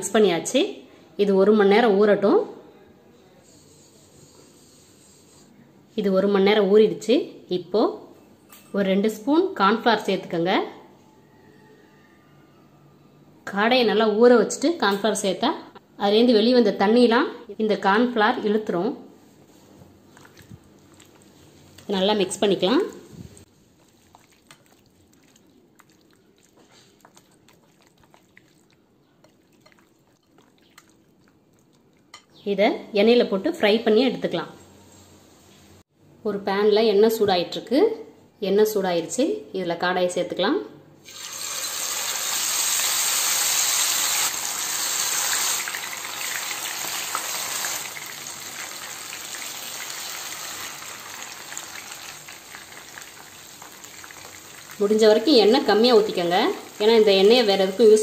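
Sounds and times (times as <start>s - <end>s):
wet squelching of kneading: 20.1s - 22.0s, 23.4s - 32.2s
meat sizzling in hot oil: 41.0s - 58.0s.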